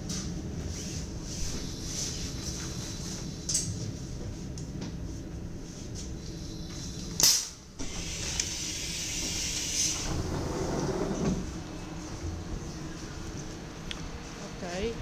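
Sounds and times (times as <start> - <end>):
burst of air: 7.8 - 10.2
sliding door rumble: 7.8 - 12.9.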